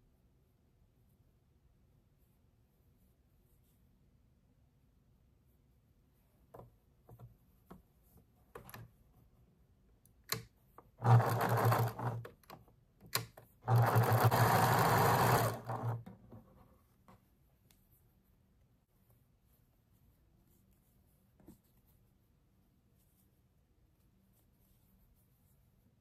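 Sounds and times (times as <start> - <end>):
small clicks: 10.0 - 16.1
sewing machine stitching: 10.3 - 16.3.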